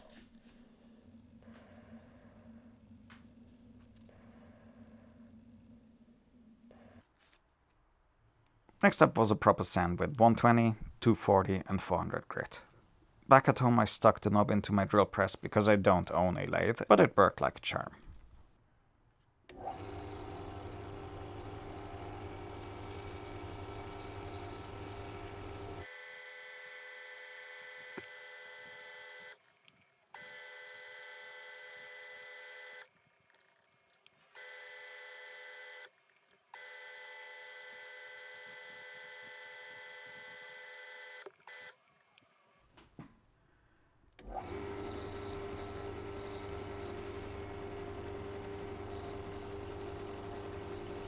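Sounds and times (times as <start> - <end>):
drill press motor hum: 19.5 - 29.4, 36.5 - 41.8, 44.2 - 51.0.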